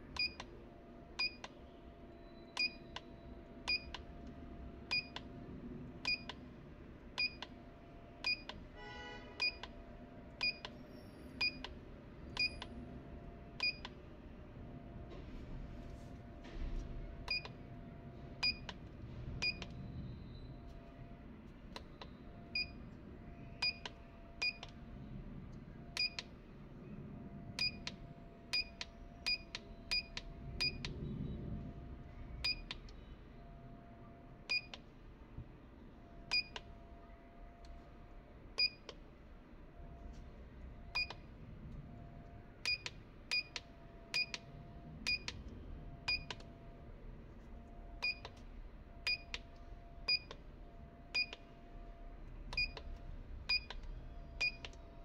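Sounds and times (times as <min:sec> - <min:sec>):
short high keypad beeps: 0:02.2 - 0:04.0.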